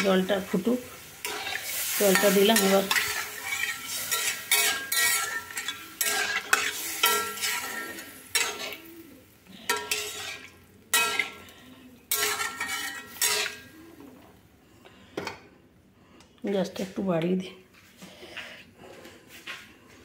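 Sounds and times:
spatula scraping pan: 0.0s - 14.0s
sizzling: 0.0s - 14.6s.

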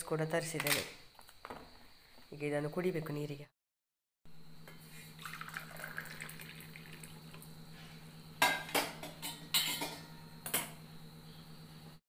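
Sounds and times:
spoon clinking against metal bowl: 8.4s - 10.6s.

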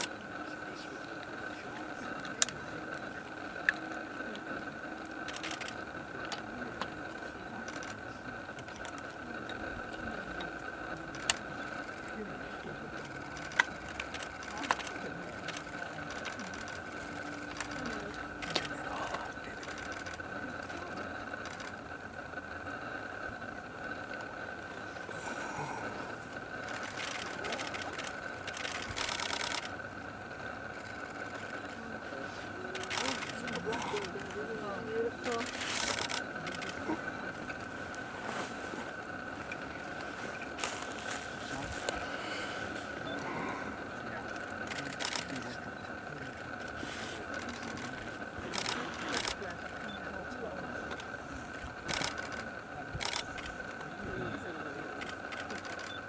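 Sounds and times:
camera shutters clicking: 5.2s - 6.4s, 26.6s - 29.7s, 35.2s - 36.8s, 44.3s - 45.4s, 46.6s - 49.4s, 51.8s - 53.8s, 55.0s - 56.0s.

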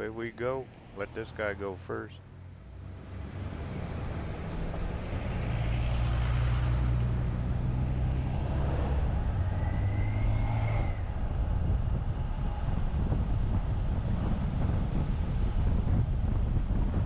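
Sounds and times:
tyre and road noise: 0.0s - 17.0s
vehicle engine accelerating: 2.6s - 17.0s
faint rising whine: 3.2s - 15.6s.

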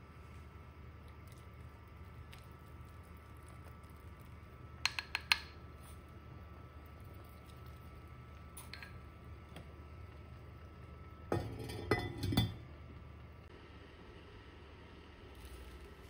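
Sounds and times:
faint steady hum: 0.0s - 16.0s
spoon clicking in salt pot: 4.8s - 5.6s.

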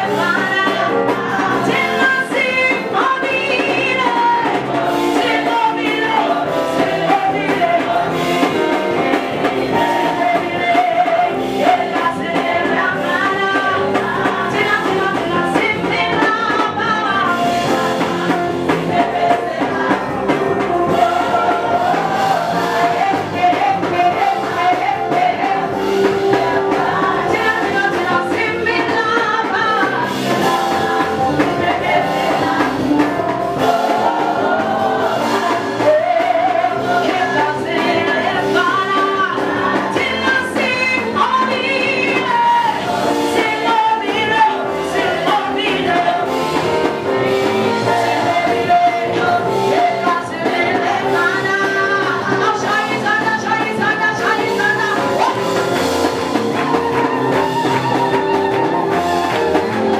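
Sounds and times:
band accompaniment: 0.0s - 59.9s
women singing gospel together: 0.0s - 59.9s.

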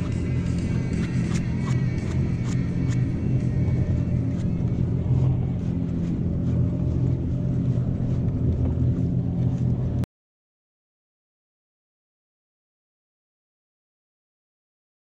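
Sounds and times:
jet ski engine humming: 0.0s - 10.0s.

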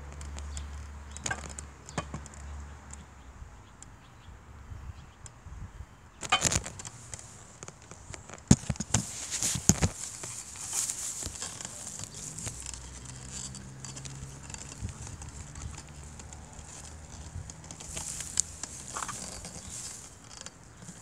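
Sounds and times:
camera handling noise: 6.2s - 21.0s.

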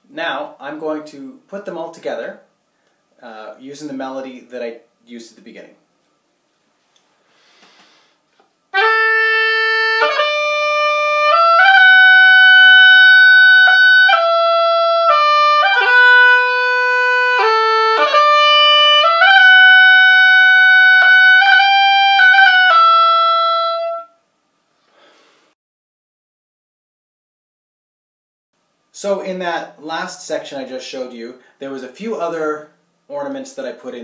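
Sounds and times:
oboe playing slow melody: 8.7s - 24.2s.

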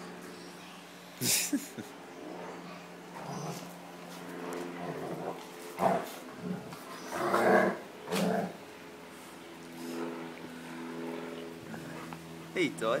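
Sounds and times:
dogs growling in play: 2.2s - 8.7s, 11.3s - 12.3s.

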